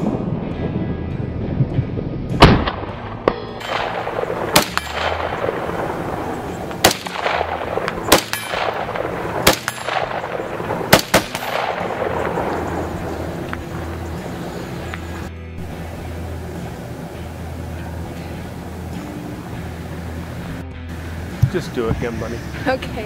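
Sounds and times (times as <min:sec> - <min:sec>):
rifle shots: 0:02.4 - 0:13.9.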